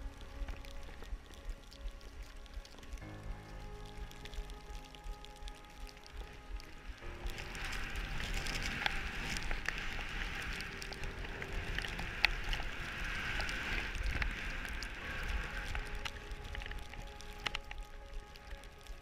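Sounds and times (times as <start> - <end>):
wind rumble on microphone: 0.0 - 19.0
skis hissing through snow: 7.2 - 17.5.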